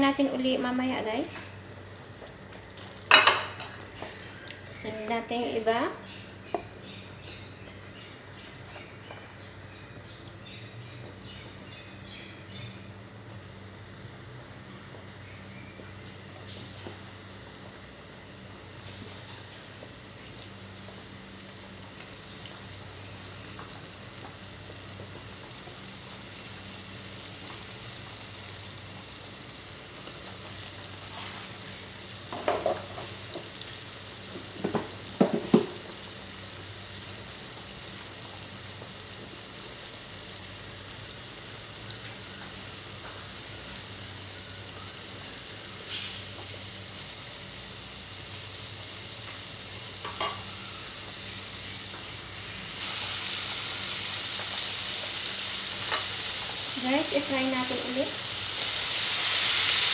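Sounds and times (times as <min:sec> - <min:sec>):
shrimp sizzling in hot oil: 0:20.2 - 0:59.9.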